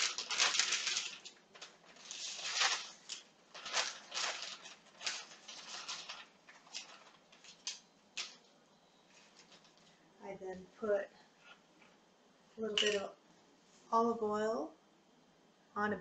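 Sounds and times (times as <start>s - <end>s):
paper wrapping rustling: 0.0s - 10.0s.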